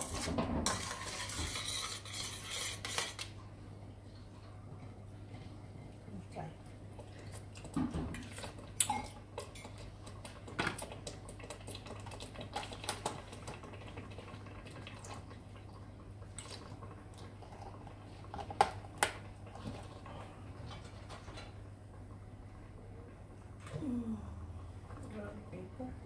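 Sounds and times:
steady low hum: 0:19.4 - 0:26.0.

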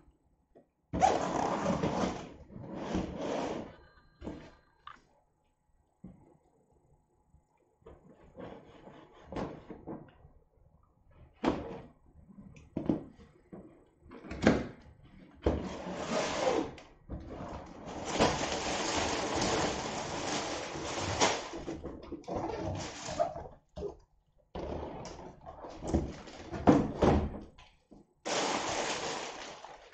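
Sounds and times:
plastic bags rustling: 0:17.9 - 0:21.8, 0:22.5 - 0:23.4, 0:28.2 - 0:29.9.

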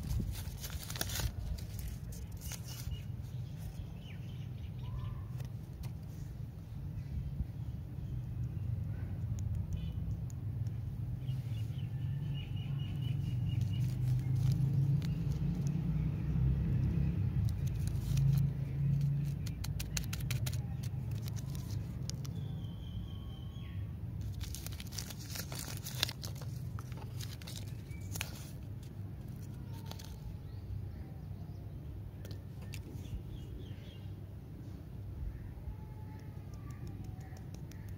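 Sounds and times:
plastic wrappers crinkling: 0:00.0 - 0:03.1, 0:13.5 - 0:15.8, 0:17.4 - 0:22.5, 0:24.2 - 0:30.3.

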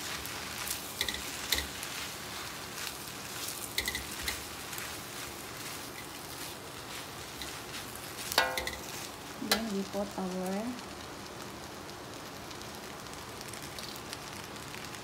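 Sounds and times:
spatula scraping wok: 0:00.0 - 0:09.8
rice sizzling in a wok: 0:00.0 - 0:15.0
spatula clinking on wok: 0:03.8 - 0:04.4, 0:08.3 - 0:09.7.

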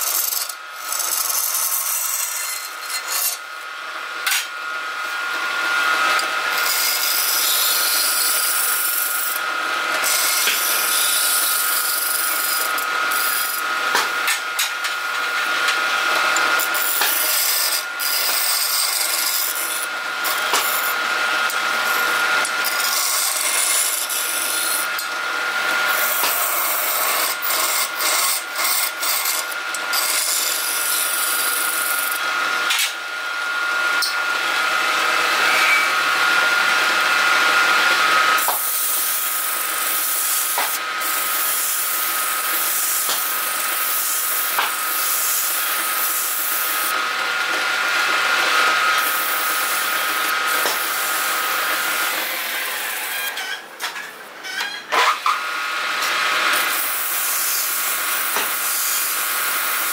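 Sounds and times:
wood lathe whine: 0:00.0 - 0:54.1, 0:54.9 - 0:59.9.

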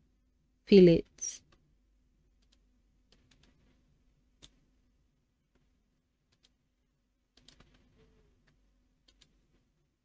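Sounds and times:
faint room hum: 0:00.0 - 0:10.0
computer mouse clicks: 0:02.4 - 0:03.7, 0:04.4 - 0:04.6, 0:06.3 - 0:06.6, 0:07.3 - 0:09.6.

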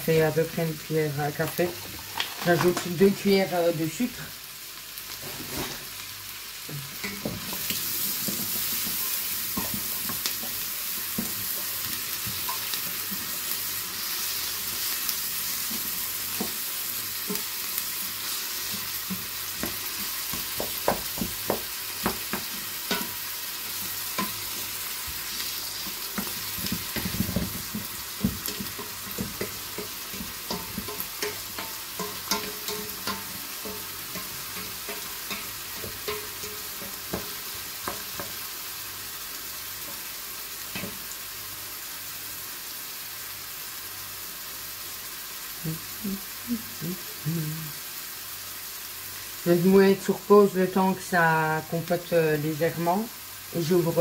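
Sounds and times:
onions sizzling in a pot: 0:00.0 - 0:54.0.

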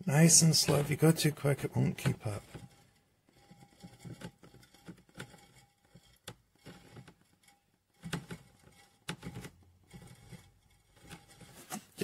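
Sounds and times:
faint clicks and knocks: 0:00.4 - 0:12.0.

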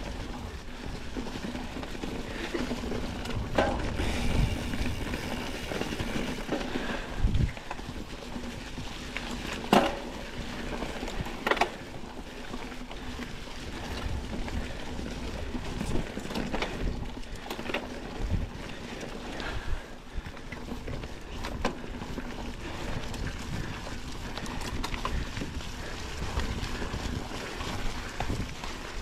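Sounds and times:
bike knocks and rattles: 0:00.0 - 0:13.2
bike tyres rustling over leaves: 0:00.0 - 0:29.0.

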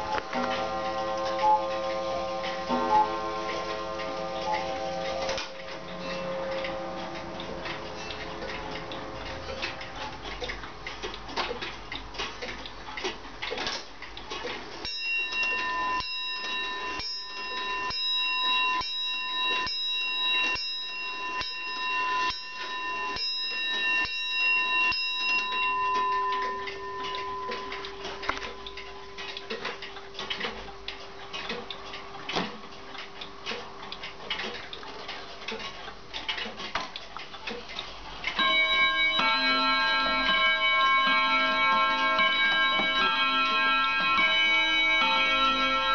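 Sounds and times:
clock bell striking: 0:00.0 - 0:09.0, 0:14.8 - 0:32.9, 0:38.3 - 0:45.9
clocks ticking: 0:00.0 - 0:45.9
lower hanging tone: 0:14.9 - 0:34.5.

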